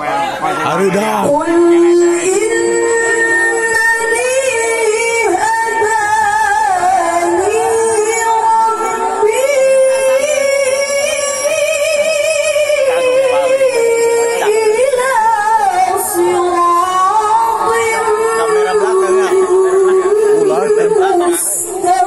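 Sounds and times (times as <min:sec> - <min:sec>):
woman chanting melodic recitation: 0:01.3 - 0:22.0.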